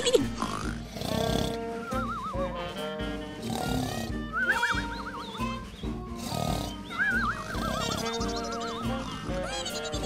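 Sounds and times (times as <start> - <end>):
background music: 0.0 - 10.0
animated dinosaur cries: 6.1 - 10.0.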